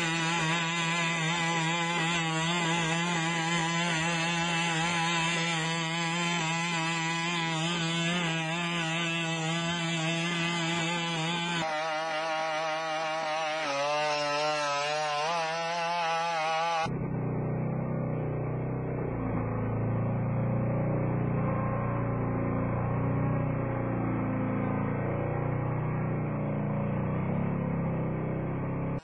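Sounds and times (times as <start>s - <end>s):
small engine buzzing whine: 0.0s - 29.0s
low robot drone: 16.6s - 29.0s.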